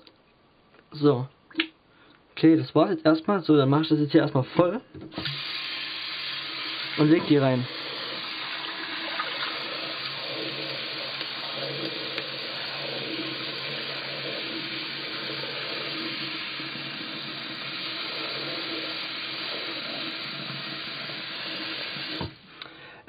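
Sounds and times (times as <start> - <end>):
tap water running into washbasin: 5.1 - 22.4.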